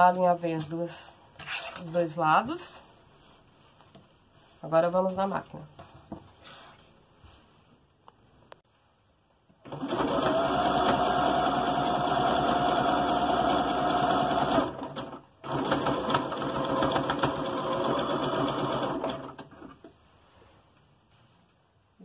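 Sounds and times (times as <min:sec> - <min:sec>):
sewing machine stitching: 0:09.6 - 0:19.8.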